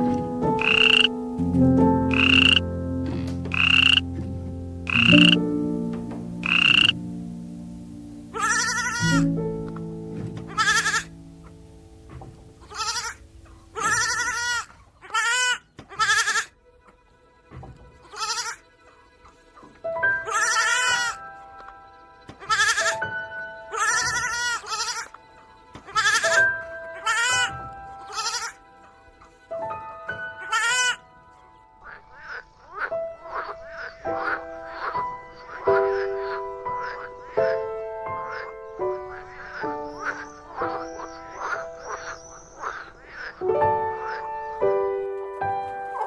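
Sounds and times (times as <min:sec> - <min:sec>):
soft background music: 0:00.0 - 0:46.0
goats bleating: 0:08.4 - 0:09.2, 0:10.4 - 0:11.1, 0:12.6 - 0:13.2, 0:13.8 - 0:16.6, 0:18.0 - 0:21.2, 0:22.3 - 0:23.0, 0:23.7 - 0:28.6, 0:30.4 - 0:31.0
sheep bleating: 0:08.4 - 0:09.2, 0:10.5 - 0:11.1, 0:12.6 - 0:13.2, 0:13.8 - 0:16.6, 0:18.0 - 0:18.6, 0:20.2 - 0:21.2, 0:22.4 - 0:23.0, 0:23.7 - 0:25.2, 0:25.8 - 0:26.4, 0:27.0 - 0:28.6, 0:30.4 - 0:31.0.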